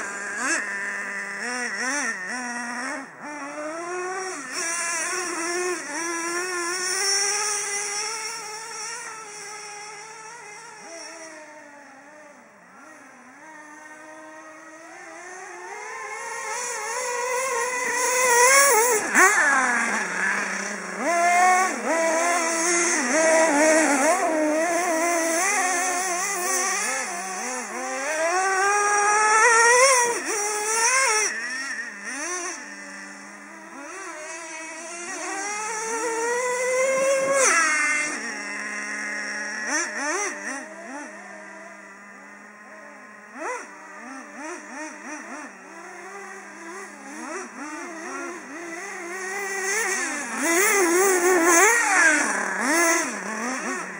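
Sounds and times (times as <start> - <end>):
small nitro engine revving: 0.0 - 53.9.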